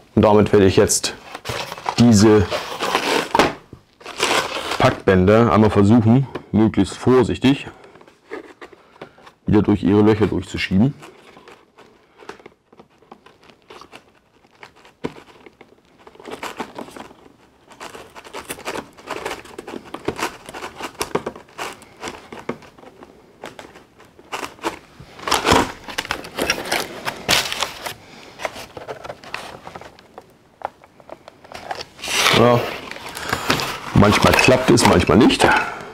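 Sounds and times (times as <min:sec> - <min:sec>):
cardboard and plastic crinkling: 0:00.4 - 0:35.9.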